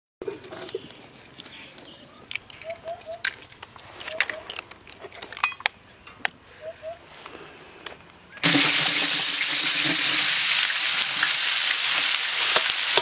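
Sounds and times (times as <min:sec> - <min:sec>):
bird chirps: 0:00.4 - 0:03.3, 0:06.6 - 0:07.0.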